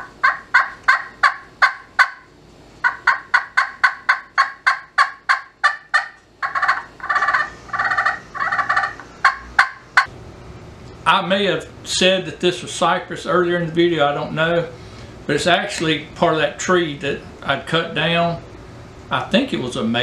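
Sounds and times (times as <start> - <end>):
rattling turkey call notes: 0.0 - 10.1
turkey call yelps: 0.0 - 10.1.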